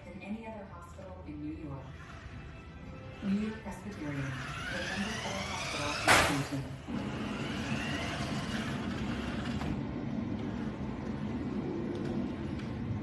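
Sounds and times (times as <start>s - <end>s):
toy truck electric motor whirring: 1.9s - 10.8s.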